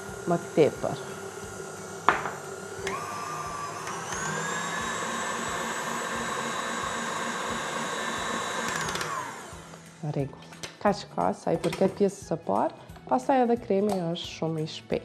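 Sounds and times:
stand mixer motor whine: 0.0 - 9.8.

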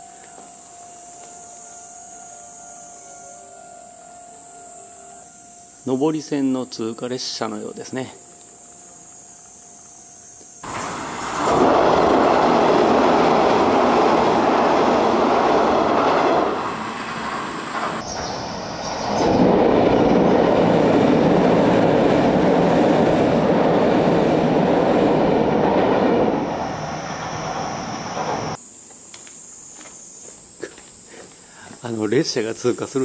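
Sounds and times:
train wheels rumbling over bridge: 10.6 - 28.6.

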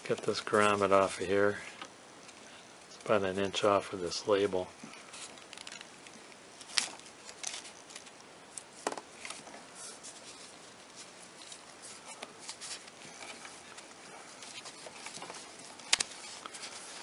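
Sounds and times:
rubber rubbing and rustling: 0.0 - 1.9, 5.0 - 17.0.

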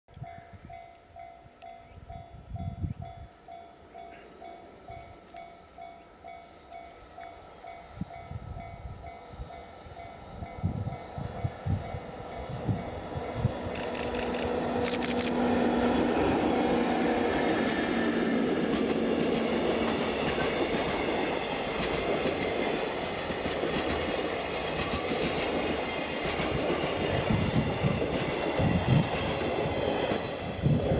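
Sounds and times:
locomotive hum: 7.0 - 23.7
train wheels rumbling on rails: 7.3 - 30.9.

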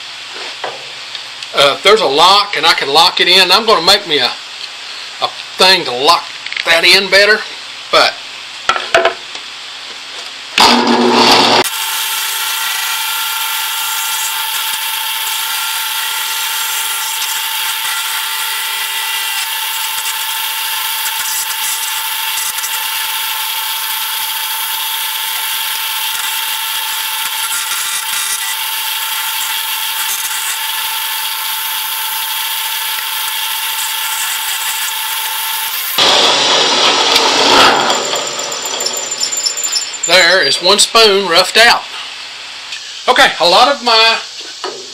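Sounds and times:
drill press high whine: 10.6 - 40.6.

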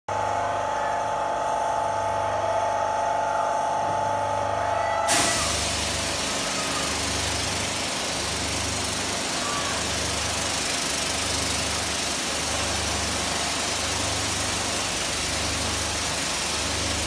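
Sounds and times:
paint sprayer motor whine: 0.1 - 17.0
pump low hum: 0.1 - 17.0
high-pressure paint spray hiss: 5.1 - 17.0.

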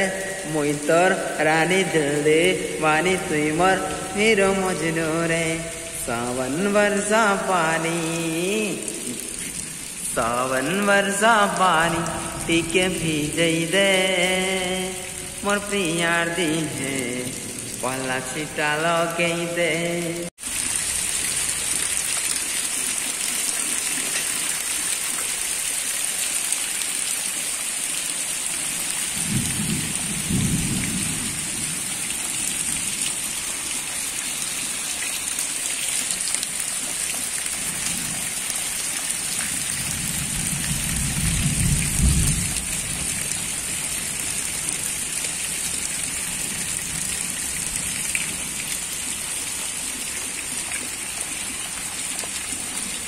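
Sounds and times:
heavy rain falling on puddles: 0.0 - 53.0
thunder rumbling: 29.2 - 33.0, 39.6 - 45.1.

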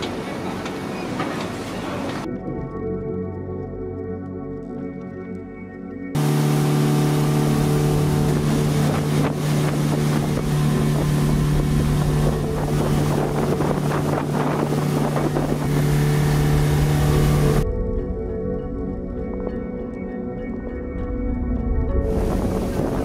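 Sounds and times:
speedboat engine running: 0.0 - 2.3, 6.2 - 18.4, 21.2 - 23.0
rushing wind: 6.2 - 17.9, 21.8 - 23.0
water noise: 6.2 - 23.0.

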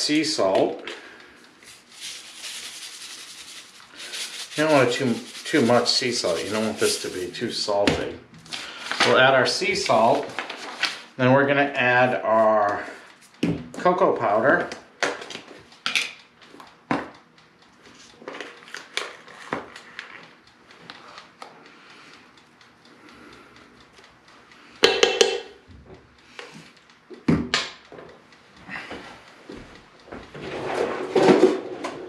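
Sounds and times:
loud ringing taps: 24.8 - 25.6.

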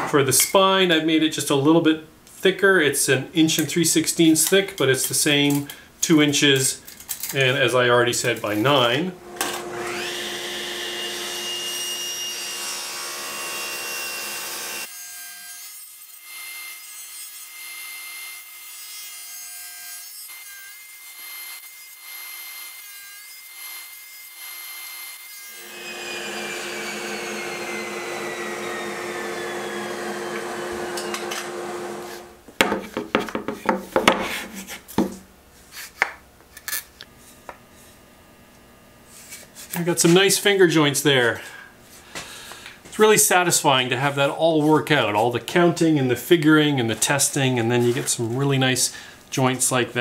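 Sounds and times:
table saw cutting wood: 9.2 - 32.4.

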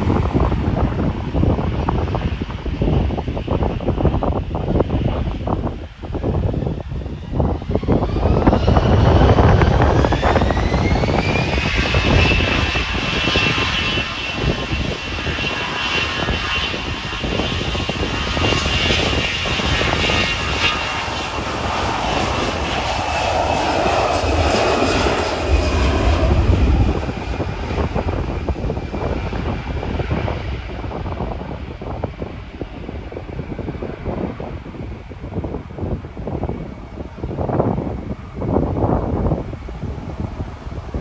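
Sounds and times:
jet engines spooling up whine: 0.0 - 41.0
loud jet rumble: 0.0 - 41.0.

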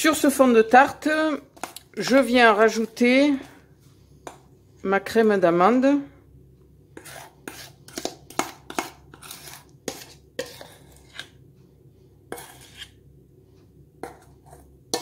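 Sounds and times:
metal spoon scraping a steel bowl: 7.0 - 11.4, 12.3 - 13.0, 14.0 - 15.0.

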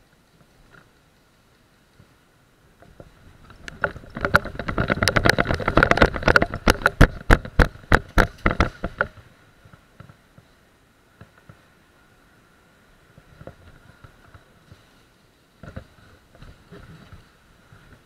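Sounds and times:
gear rattling and knocking: 2.9 - 9.2.

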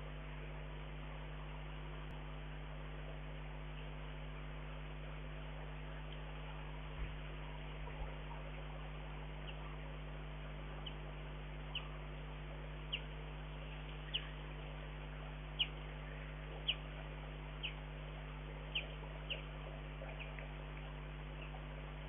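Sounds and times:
low electrical hum: 0.0 - 22.0
small bird chirping: 9.4 - 9.8, 10.6 - 21.8.

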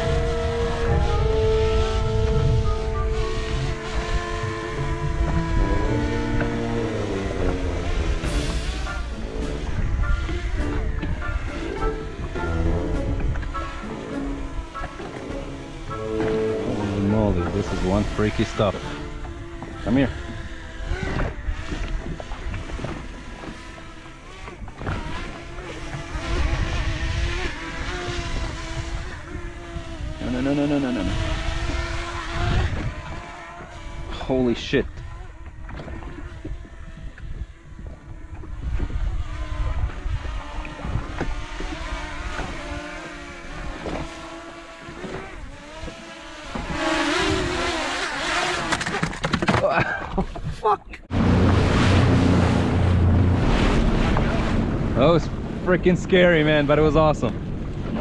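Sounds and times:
low rumble: 0.0 - 13.6, 51.0 - 58.0
drone propellers whining: 0.0 - 58.0
wind rumbling on microphone: 0.0 - 58.0.

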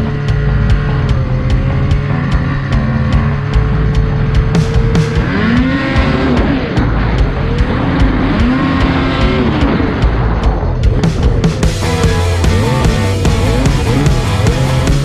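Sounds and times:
snowmobile engine revving: 0.0 - 15.0.

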